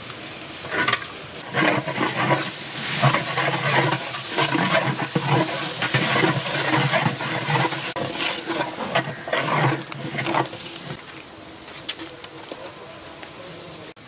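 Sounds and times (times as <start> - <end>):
leaves sizzling in hot oil: 0.0 - 11.0
metal paddle scraping a pot: 0.6 - 11.0.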